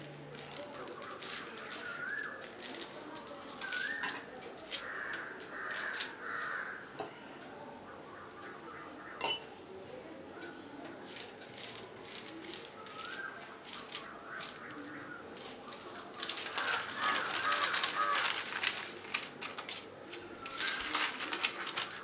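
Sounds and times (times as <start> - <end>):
paper rustling and crinkling: 0.0 - 6.6, 11.1 - 22.0.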